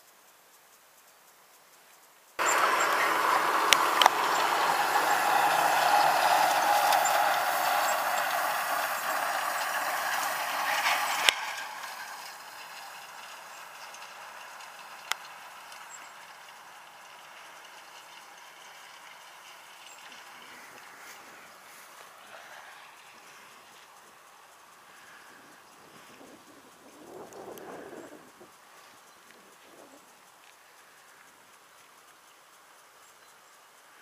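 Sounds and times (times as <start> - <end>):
sharp clicks: 2.4 - 4.5
tractor and hay tedder rattling: 2.4 - 31.4.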